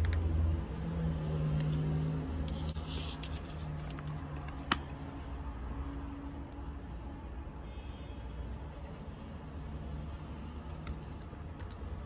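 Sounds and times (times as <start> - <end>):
paper rustling and scraping: 1.5 - 5.3.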